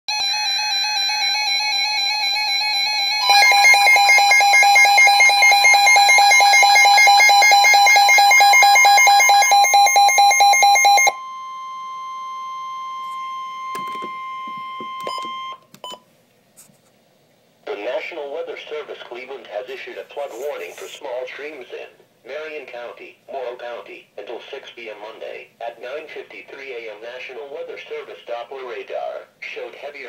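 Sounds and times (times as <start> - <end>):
steady warning alarm tone: 0.1 - 15.6
pulsing alarm beeps: 0.1 - 16.0
louder faster beeping: 2.8 - 11.4.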